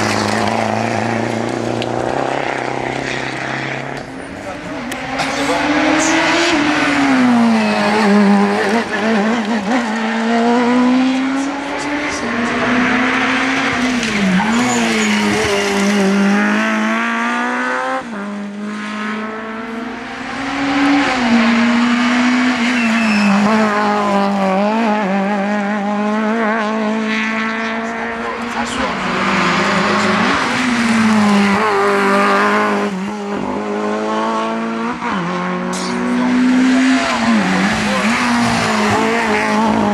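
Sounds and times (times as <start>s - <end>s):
race car engines at full throttle: 0.0s - 39.9s
tyres squealing: 13.2s - 16.1s.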